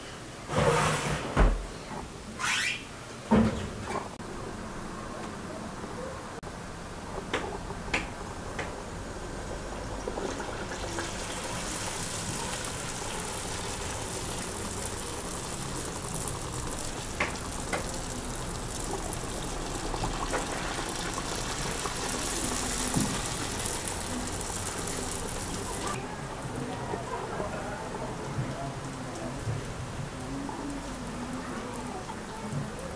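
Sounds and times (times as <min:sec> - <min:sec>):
dough sizzling in hot oil: 0:07.2 - 0:26.0.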